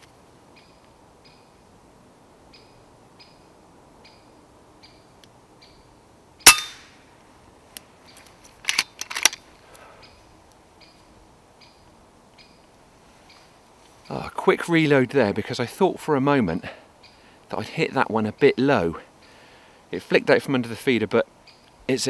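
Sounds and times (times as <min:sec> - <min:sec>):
air rifle shot: 0:06.5 - 0:06.9.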